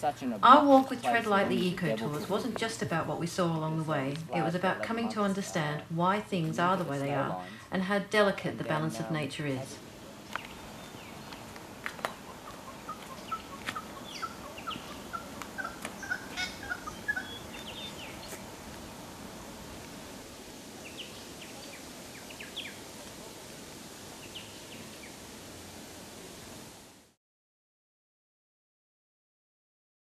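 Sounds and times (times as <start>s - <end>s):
steady background hiss: 0.0s - 27.2s
birds chattering: 0.1s - 7.8s, 8.5s - 19.4s, 20.0s - 25.3s
high bird chirps: 12.1s - 18.4s.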